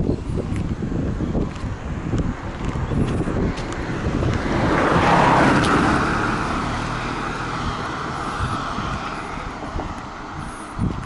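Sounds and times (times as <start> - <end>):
car driving past: 3.9 - 10.4.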